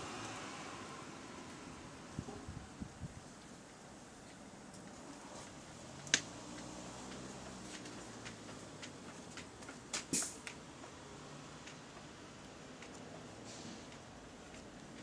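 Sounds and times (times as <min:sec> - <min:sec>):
air release hiss: 0:10.1 - 0:10.4, 0:13.4 - 0:13.9.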